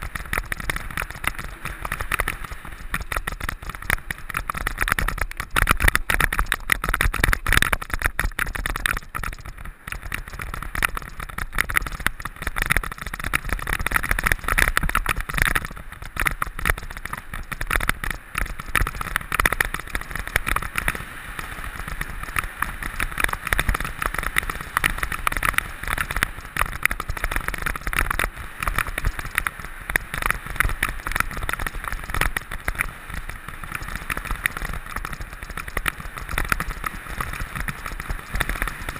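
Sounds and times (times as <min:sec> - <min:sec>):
bike clattering and rattling: 0:00.0 - 0:38.9
tyre and wind rumble: 0:00.0 - 0:38.9.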